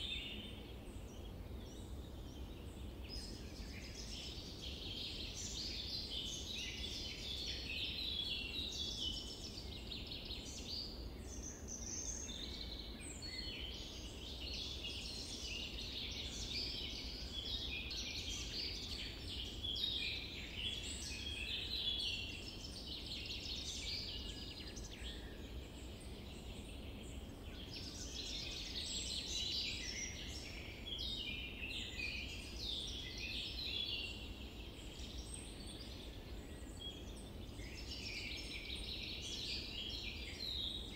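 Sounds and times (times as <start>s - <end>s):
small birds chirping: 0.0s - 40.9s.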